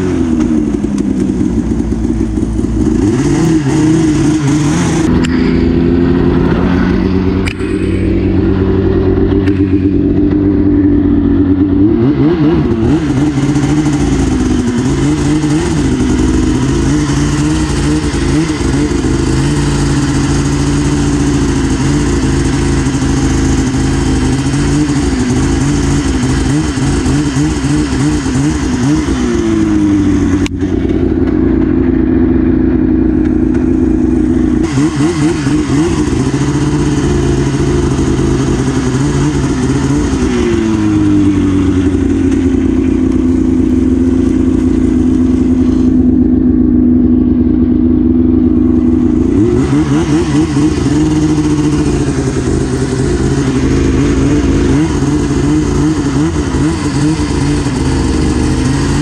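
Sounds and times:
snowmobile engine revving: 0.0 - 46.7, 48.3 - 59.0.

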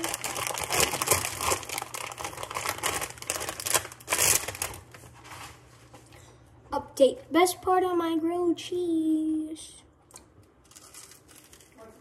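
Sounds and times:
plastic bag crinkling: 0.0 - 5.4, 10.6 - 12.0.

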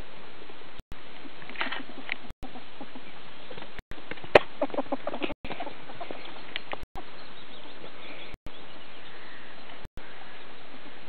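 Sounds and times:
ferrets clucking: 1.8 - 8.4.

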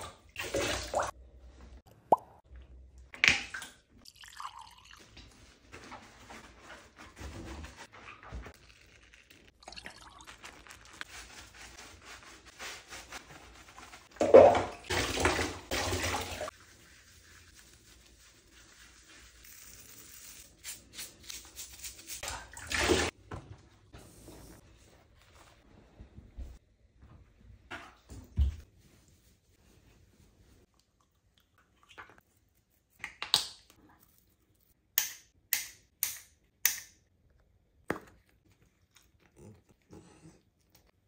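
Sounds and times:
water splashing in a bathtub: 0.0 - 19.2, 21.7 - 23.3, 30.5 - 34.2.

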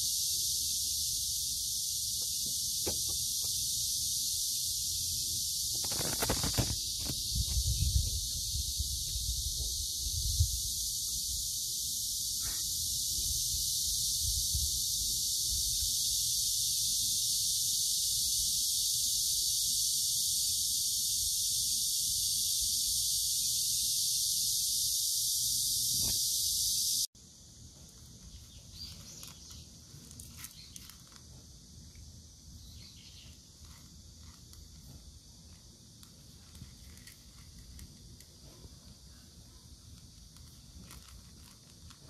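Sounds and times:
cicadas chorus: 0.0 - 42.0
cats crunching dry kibble: 40.3 - 42.0.

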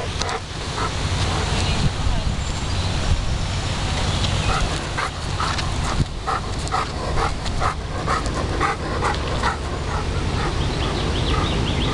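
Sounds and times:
wind rumble on microphone: 0.0 - 11.9
dog panting: 4.5 - 11.9.

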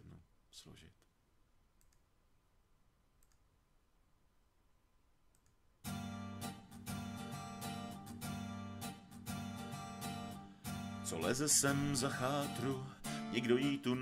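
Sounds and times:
faint clicks: 1.8 - 2.1, 3.2 - 3.5, 5.3 - 5.6
instrumental song with guitar: 5.8 - 14.0.

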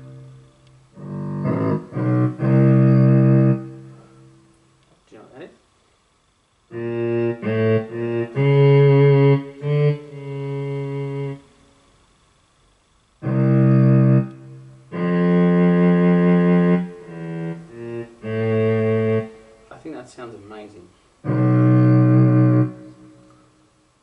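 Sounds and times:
cello-like synth guitar melody: 0.0 - 4.2, 6.7 - 11.4, 13.2 - 19.7, 21.2 - 23.4.

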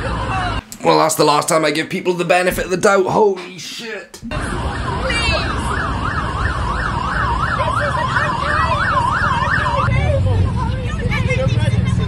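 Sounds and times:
emergency siren yelping: 0.0 - 0.6, 4.2 - 10.4
low rumble of traffic: 0.0 - 0.6, 4.3 - 12.0.

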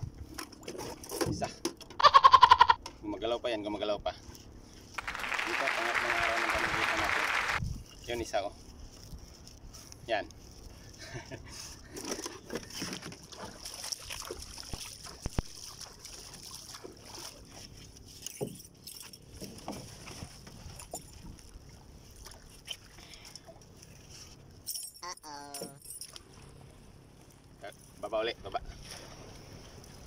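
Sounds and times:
knocks and clicks in boat: 0.0 - 2.0, 11.8 - 21.6
water hissing around boat: 4.2 - 8.4.

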